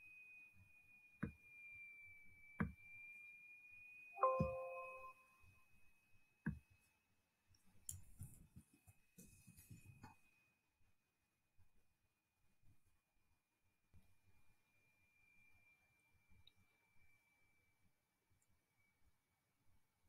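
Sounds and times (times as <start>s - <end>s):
faint high-pitched whine: 0.0s - 6.4s, 14.0s - 19.8s
computer dialog chime: 4.2s - 5.2s.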